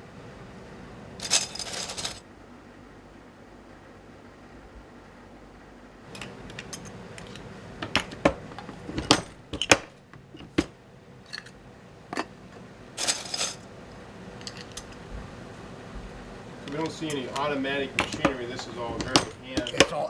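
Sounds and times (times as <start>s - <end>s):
metal parts rattling in a box: 1.2s - 2.2s, 13.0s - 13.7s, 18.8s - 20.0s
sheet-metal parts clinking: 1.2s - 2.2s, 16.7s - 20.0s.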